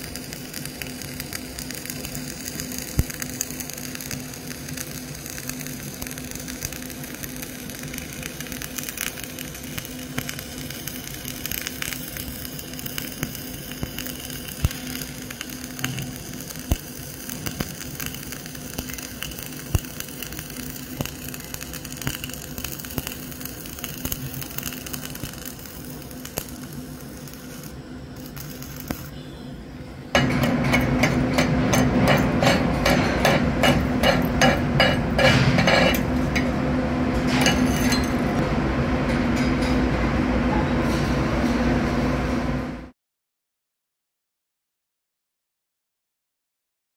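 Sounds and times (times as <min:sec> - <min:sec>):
welding arc crackling: 0:00.0 - 0:29.2, 0:30.1 - 0:38.5
chipping hammer striking metal: 0:30.2 - 0:36.5.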